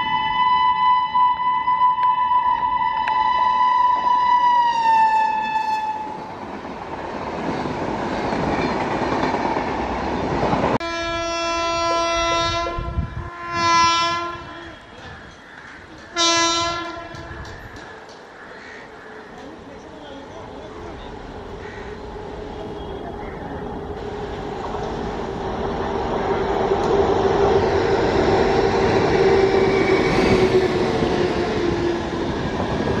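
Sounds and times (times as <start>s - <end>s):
locomotive horn: 0.0s - 6.2s, 10.8s - 15.2s, 16.1s - 17.5s
train coaches rolling past: 0.0s - 33.0s.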